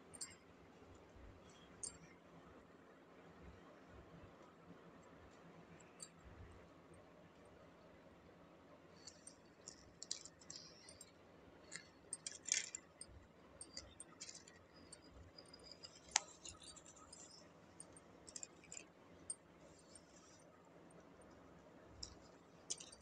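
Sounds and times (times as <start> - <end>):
bangles clinking: 0.0 - 0.4, 1.4 - 2.2, 8.9 - 20.5, 21.2 - 23.0.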